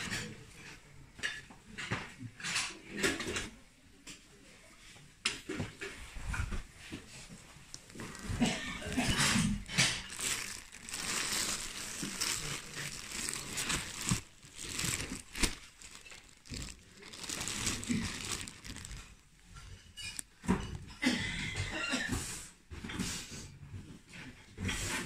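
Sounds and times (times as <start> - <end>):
plastic bags and fabric rustling: 0.0 - 0.7, 5.5 - 21.0.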